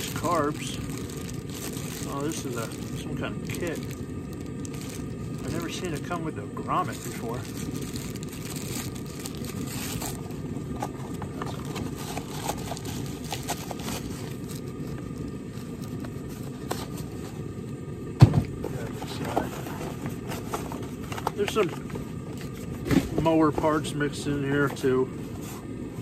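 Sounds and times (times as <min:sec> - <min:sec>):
plastic bag rustling: 0:00.0 - 0:17.3
steady low rumble: 0:00.0 - 0:26.0.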